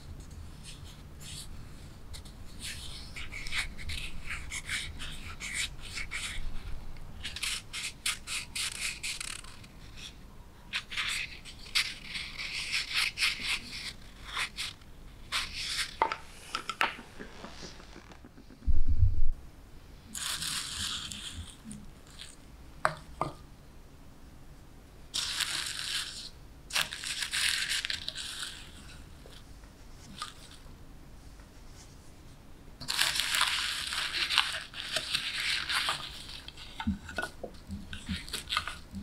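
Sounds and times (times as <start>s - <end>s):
wood shavings rustling: 32.9s - 37.3s.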